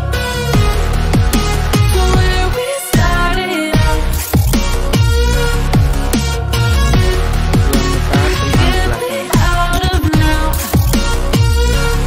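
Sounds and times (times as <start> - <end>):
electronic dance music: 6.7 - 11.0.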